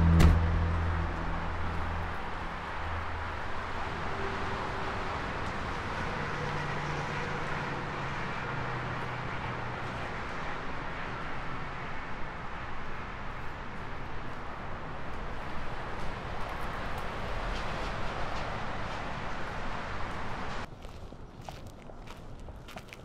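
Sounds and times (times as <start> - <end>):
footsteps on pavement: 19.4 - 23.0.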